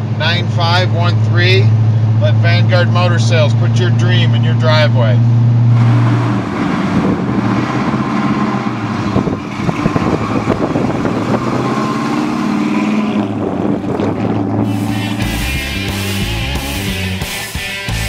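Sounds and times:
car engine driving past: 0:05.2 - 0:16.9.

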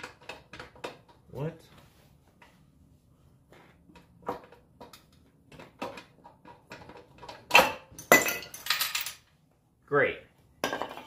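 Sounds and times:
metal clicks and knocks from tools: 0:03.9 - 0:09.2.

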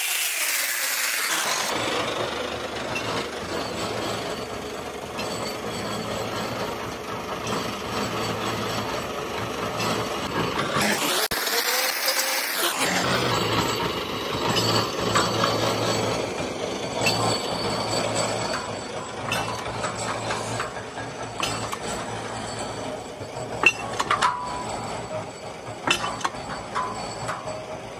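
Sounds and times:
winch motor hum: 0:00.0 - 0:27.9
sharp metal clinks: 0:13.2 - 0:27.9.

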